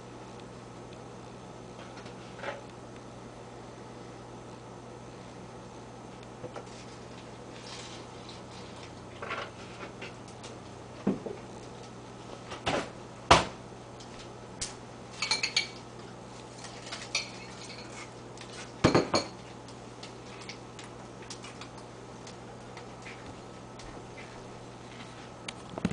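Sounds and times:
items knocked on countertop: 18.8 - 19.3.

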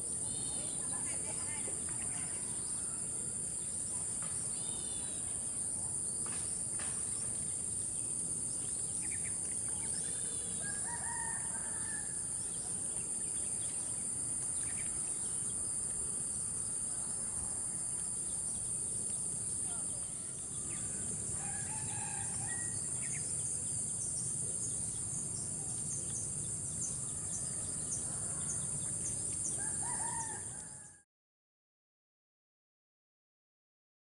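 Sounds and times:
high insect drone: 0.0 - 31.0
distant rooster crowing: 10.5 - 12.4, 20.7 - 22.9, 27.0 - 31.0.

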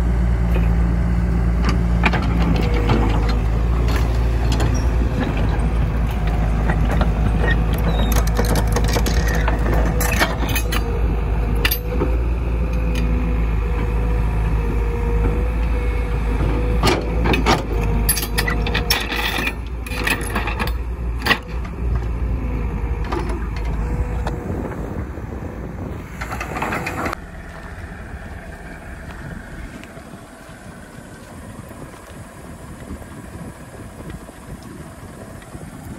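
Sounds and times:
diesel engine rumble and whine: 0.0 - 35.9
metal track clanks: 1.7 - 10.9, 16.8 - 21.8.

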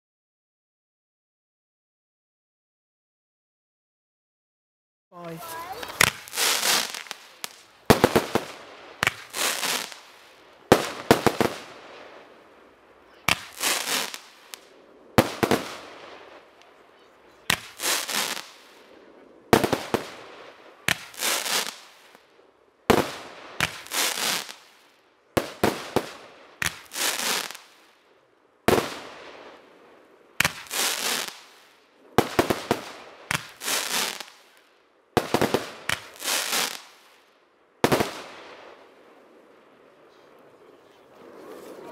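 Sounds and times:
firework launch reports: 5.2 - 12.4, 13.0 - 22.2, 39.8 - 41.9
firework bursts with crackles: 5.2 - 41.9.

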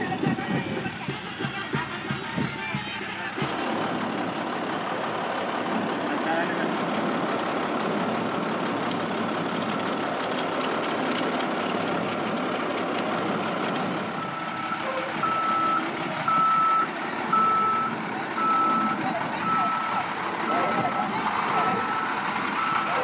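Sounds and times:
engine running: 0.0 - 23.0
backup alarm beeping: 14.2 - 20.9.

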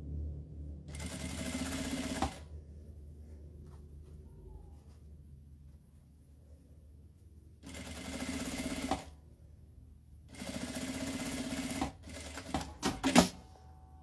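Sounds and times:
sewing machine stitching: 0.9 - 2.4, 7.6 - 9.1, 10.3 - 13.4.

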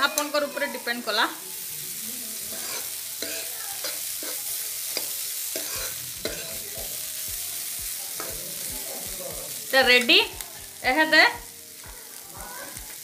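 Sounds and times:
vegetables sizzling in a frying pan: 0.0 - 13.0
ladle scraping a pan: 2.5 - 4.4, 5.0 - 6.6.

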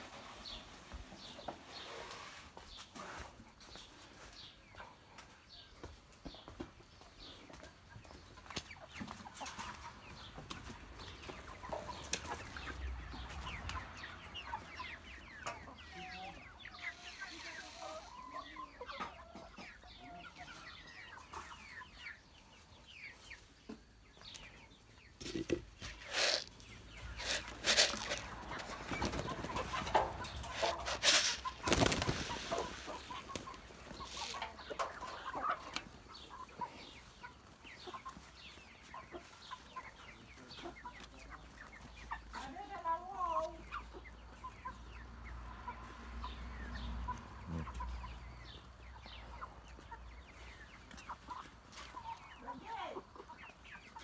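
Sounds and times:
hens clucking: 0.0 - 54.0
sharp noises: 25.8 - 34.6.

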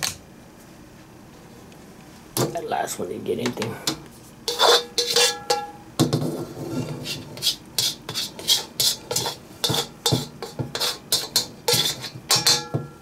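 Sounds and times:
spatula scraping a pan: 4.4 - 12.7.

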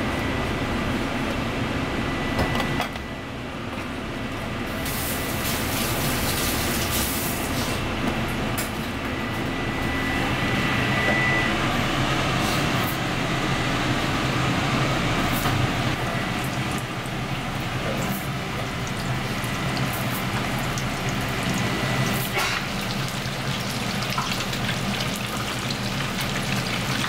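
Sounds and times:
oil sizzling in a deep fryer: 4.7 - 7.8, 14.8 - 27.0
kitchen noise: 22.1 - 27.0.

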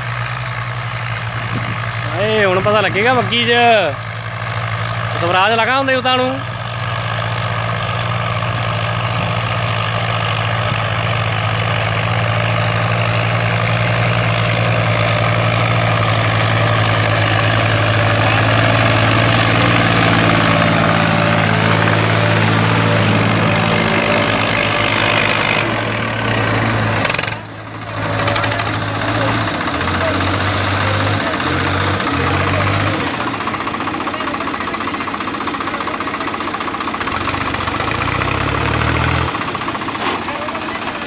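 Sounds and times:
diesel tractor engines running: 0.0 - 41.0.

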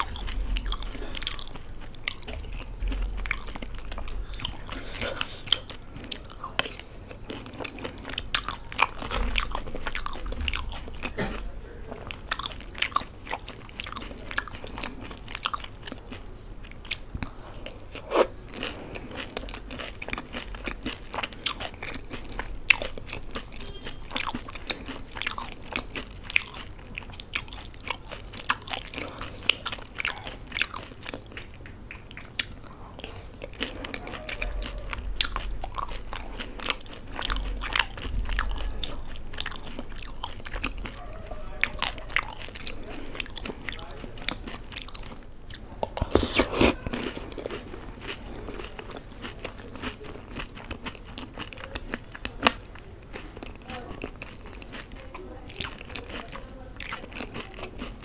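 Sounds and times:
wet mouth sounds: 0.0 - 15.6, 44.8 - 56.1
crunchy chewing: 0.0 - 58.0.

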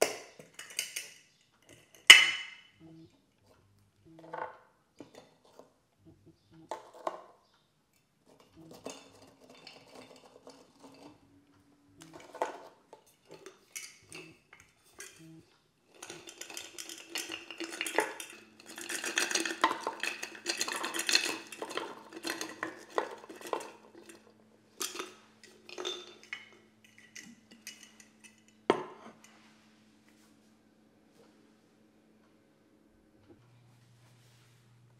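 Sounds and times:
cookies clattering on wooden board: 0.0 - 2.7, 6.7 - 7.4, 8.2 - 11.3, 12.1 - 15.2, 15.9 - 29.0
cookies clinking against glass jar: 0.0 - 2.8, 8.0 - 11.4, 12.0 - 29.4.

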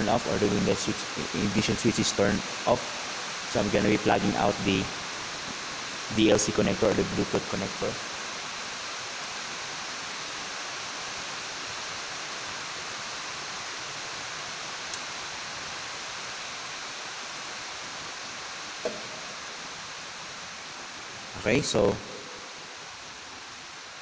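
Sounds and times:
steady background hiss: 0.0 - 24.0
short knock: 18.8 - 19.4.

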